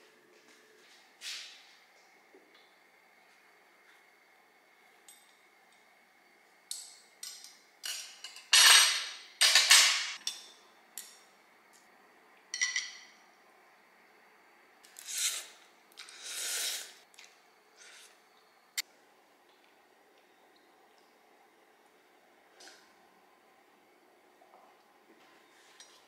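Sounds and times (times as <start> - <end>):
utensils clinking on glass bowl: 12.5 - 13.1.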